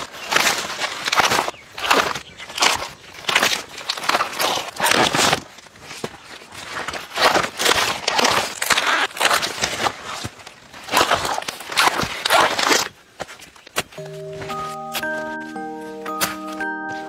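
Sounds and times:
corn husks rustling and crackling: 0.0s - 17.0s.

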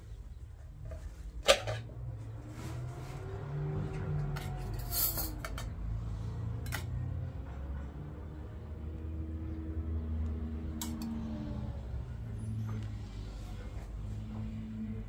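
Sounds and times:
dishes and utensils clinking: 1.4s - 1.9s, 4.3s - 5.8s.

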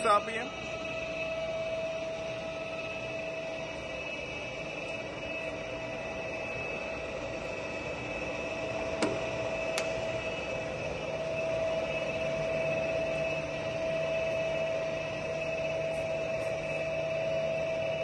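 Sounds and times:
lathe drive hum and whine: 0.0s - 18.0s.

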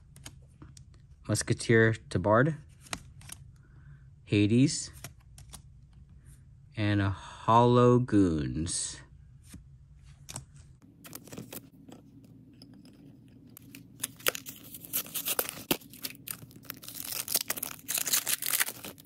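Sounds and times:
foil wrapper crinkling and tearing: 13.5s - 19.0s.

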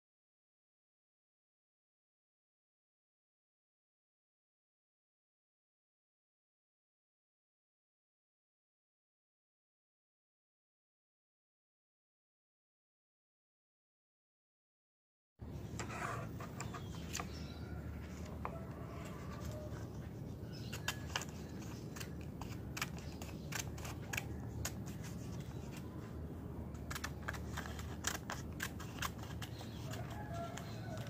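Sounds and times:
scissors snipping paper: 16.4s - 31.0s.

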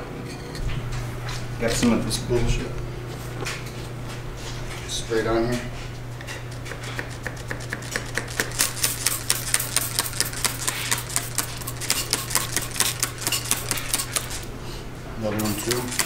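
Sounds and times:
steady low hum: 0.0s - 16.0s
spray bottle squirts: 7.7s - 14.5s, 15.4s - 16.0s.

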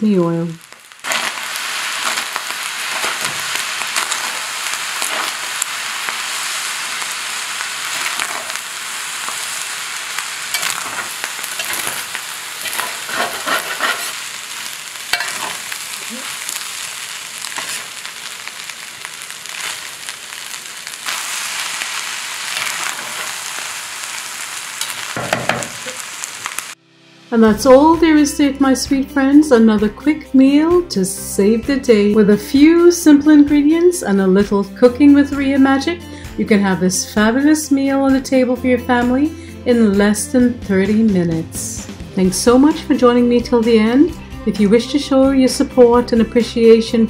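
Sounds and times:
rice sizzling in skillet: 0.0s - 26.8s
metal spatula scraping pan: 10.4s - 14.4s, 15.0s - 16.6s, 17.4s - 18.0s.

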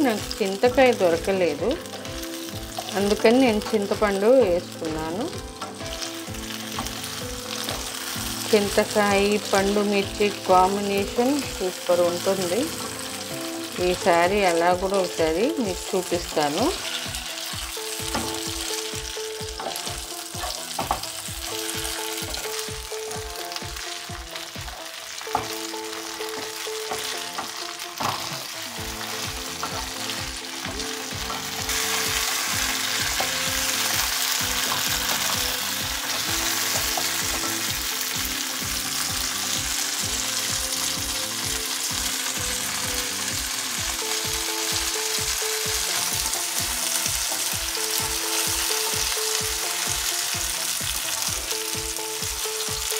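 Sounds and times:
chillies sizzling in hot oil: 0.0s - 52.9s
spatula tapping a pan: 19.6s - 21.1s.

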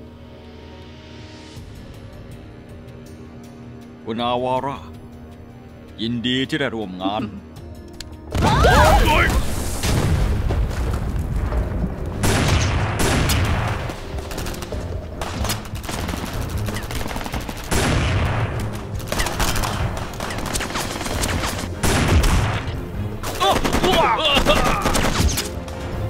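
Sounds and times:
rapid gunfire: 12.2s - 25.6s.

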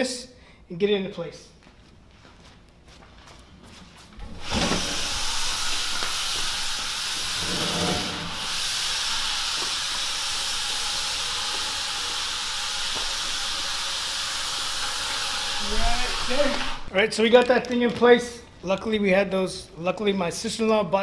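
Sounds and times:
slide pads scraping on floor: 7.2s - 8.5s.

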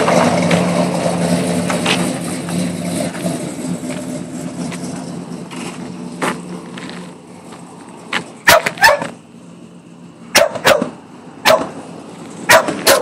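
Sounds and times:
truck engine idling: 0.0s - 13.0s
dog barking: 8.5s - 9.2s, 10.3s - 11.8s, 12.5s - 13.0s.

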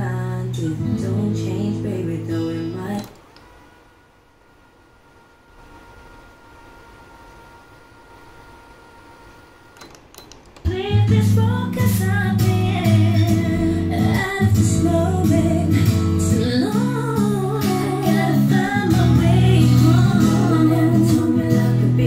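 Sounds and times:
woman singing over guitar and bass: 0.0s - 3.2s, 10.7s - 22.0s.

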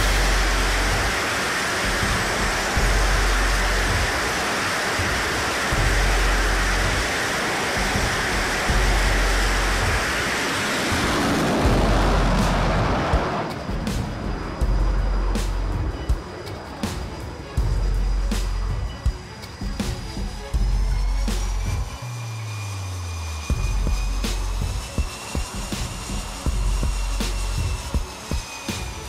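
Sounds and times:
jet engines roaring: 0.0s - 29.0s
wind buffeting microphone: 7.8s - 16.7s.

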